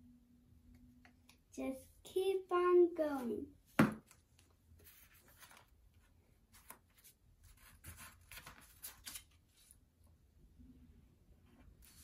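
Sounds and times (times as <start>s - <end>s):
paper rustling and tapping: 6.6s - 9.3s.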